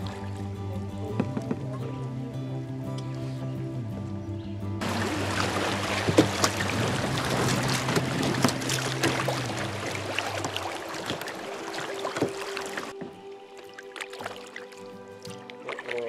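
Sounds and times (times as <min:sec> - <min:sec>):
knocks on kayak: 0:04.8 - 0:09.6
sharp splashes: 0:04.8 - 0:13.0, 0:13.6 - 0:16.0
creek water rushing: 0:04.8 - 0:16.0.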